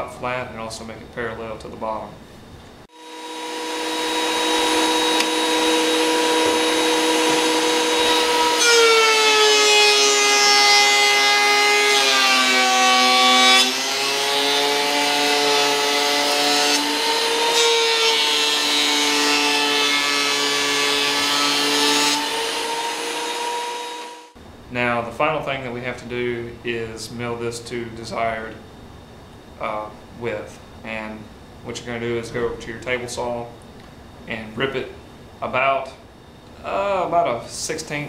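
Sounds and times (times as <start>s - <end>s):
planer cutting board: 2.9s - 24.2s
thickness planer motor whine: 2.9s - 24.4s.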